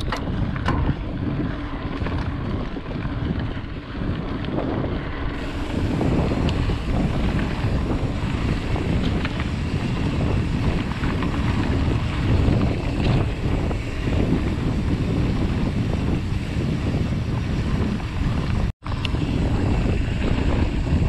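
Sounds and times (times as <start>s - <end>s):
light clicks from bike: 0.0s - 1.0s, 1.8s - 4.6s, 6.2s - 7.5s
tyres rolling on dirt trail: 0.0s - 21.0s
wind buffeting microphone: 0.0s - 21.0s.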